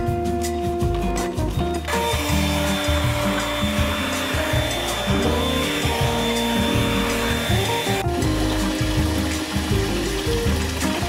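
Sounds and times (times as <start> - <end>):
background music: 0.0 - 11.0
handheld vacuum cleaner running: 1.8 - 8.6.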